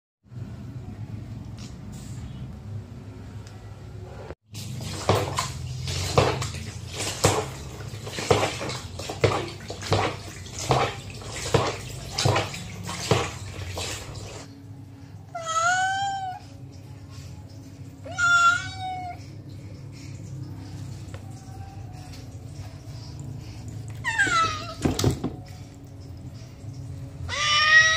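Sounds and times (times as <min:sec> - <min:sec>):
water splashing in plastic basin: 0:04.5 - 0:14.5, 0:20.2 - 0:27.9
kitten meowing: 0:15.4 - 0:16.4, 0:18.1 - 0:19.2.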